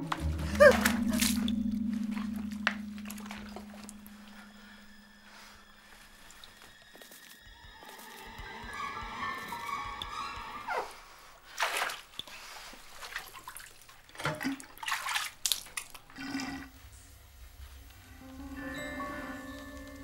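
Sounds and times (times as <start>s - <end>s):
water splashing: 0.0s - 16.8s
running water: 0.0s - 20.0s.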